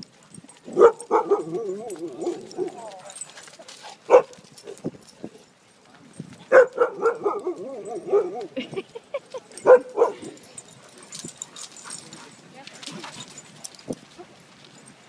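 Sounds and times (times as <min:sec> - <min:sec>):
dogs whining and yelping: 0:00.5 - 0:05.0, 0:06.6 - 0:14.4
dogs barking: 0:00.6 - 0:03.3, 0:04.1 - 0:04.8, 0:06.5 - 0:08.6, 0:09.6 - 0:11.2.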